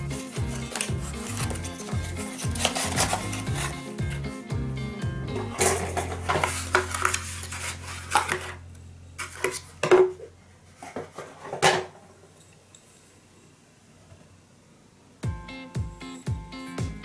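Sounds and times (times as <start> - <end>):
low steady hum: 0.0 - 17.0
cardboard box rustling: 0.2 - 3.8, 5.5 - 8.5
knocks and scrapes: 0.2 - 4.2, 5.4 - 8.6, 9.2 - 12.2.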